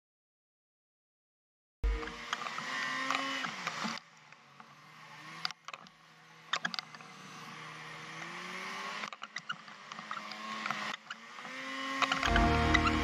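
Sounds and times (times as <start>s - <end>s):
snowmobile engine revving: 11.5s - 13.0s.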